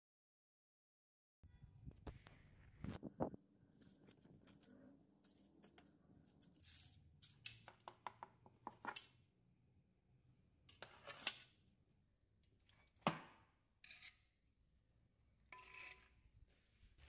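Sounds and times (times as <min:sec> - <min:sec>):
knife scraping metal baking frame: 0:10.7 - 0:11.6, 0:13.8 - 0:14.4, 0:15.5 - 0:16.2.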